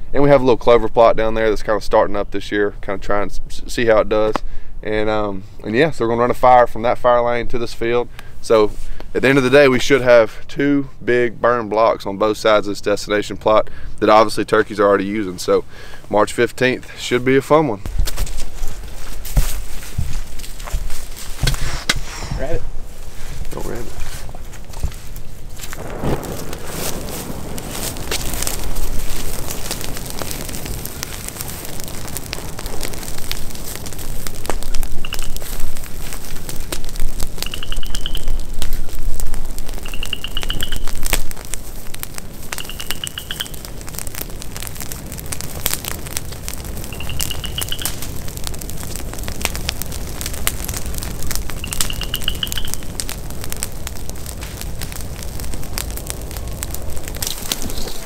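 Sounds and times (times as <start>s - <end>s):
dry grass crackling and popping in fire: 0.0s - 58.0s
wind rumble on microphone: 17.9s - 42.5s
bird trill: 37.4s - 38.4s, 39.9s - 40.9s, 42.6s - 43.6s, 47.0s - 48.0s, 51.6s - 52.8s.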